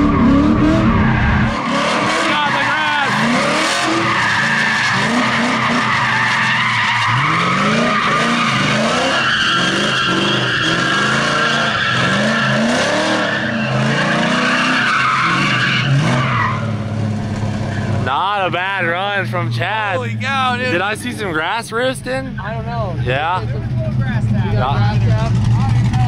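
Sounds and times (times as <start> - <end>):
car engine revving: 0.0 - 26.0
tyres squealing: 1.0 - 16.7.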